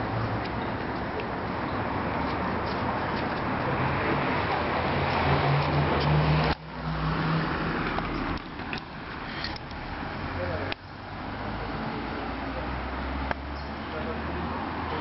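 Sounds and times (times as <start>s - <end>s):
street noise: 0.0s - 15.0s
vehicle engine hum: 0.0s - 15.0s.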